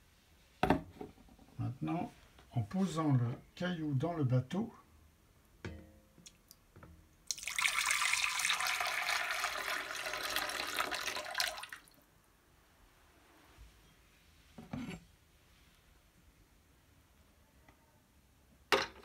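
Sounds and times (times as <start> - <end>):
water pouring into ceramic bowl: 7.3 - 12.0.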